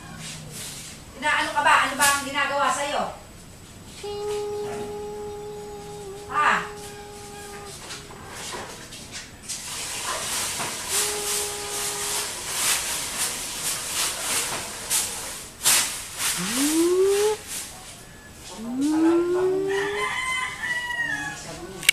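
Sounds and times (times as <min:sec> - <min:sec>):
rustling hiss: 0:00.0 - 0:20.1
call sliding upward in pitch: 0:04.0 - 0:08.3, 0:10.9 - 0:12.3, 0:16.4 - 0:17.4, 0:18.5 - 0:20.0
held tone: 0:04.0 - 0:08.3, 0:16.4 - 0:17.4, 0:18.6 - 0:20.0.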